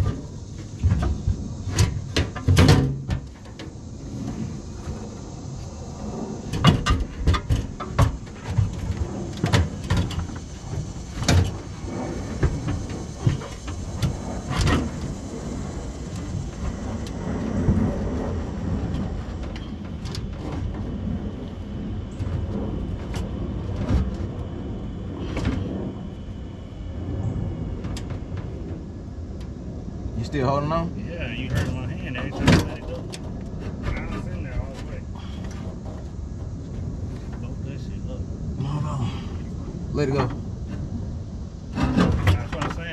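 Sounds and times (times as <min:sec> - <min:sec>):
knocks clunks and scrapes: 0:00.0 - 0:05.2, 0:06.4 - 0:15.5, 0:31.3 - 0:37.9, 0:39.3 - 0:42.9
steady background noise: 0:00.0 - 0:42.9.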